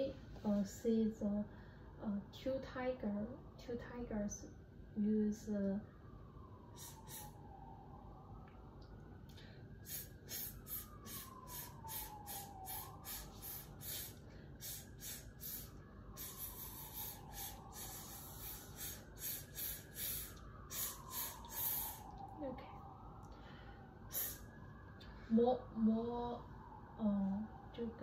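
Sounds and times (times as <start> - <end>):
short hissed exhalations: 9.8 - 22.0.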